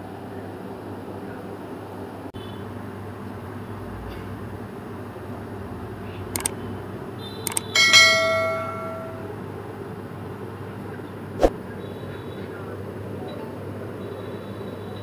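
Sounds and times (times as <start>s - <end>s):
bell ding: 7.5s - 9.4s.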